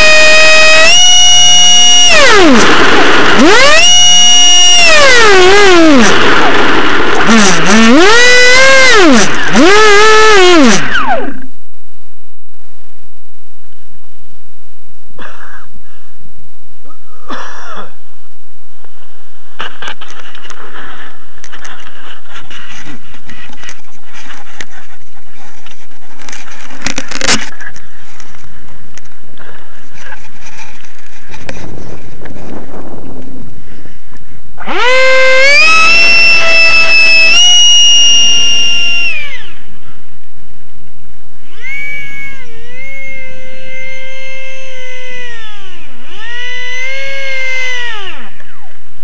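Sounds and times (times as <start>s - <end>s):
loud burst of noise: 0.0s - 24.7s, 26.2s - 49.0s
electric ducted fan whine: 0.0s - 49.0s
heavy wind noise: 19.0s - 34.9s
wind rush: 30.6s - 34.6s.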